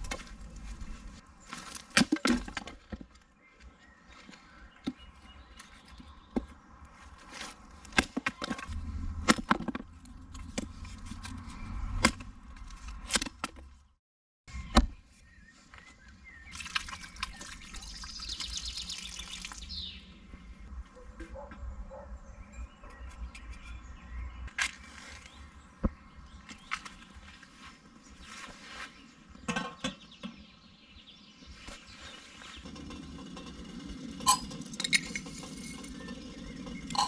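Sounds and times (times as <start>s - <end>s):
water running from tap: 16.6s - 19.7s.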